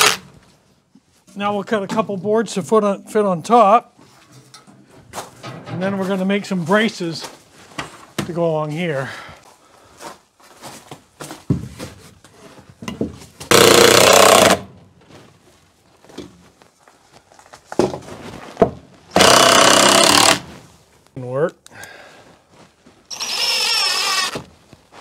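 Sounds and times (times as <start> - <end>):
cordless driver driving screws: 0.0 - 0.2, 13.5 - 14.6, 19.2 - 20.4, 23.1 - 24.5.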